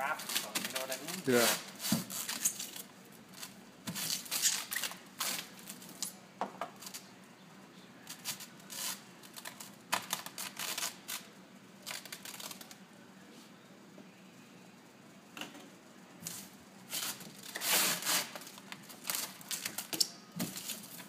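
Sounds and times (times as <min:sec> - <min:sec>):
plastic film crinkling: 0:00.1 - 0:06.0, 0:08.1 - 0:12.8, 0:17.0 - 0:19.9.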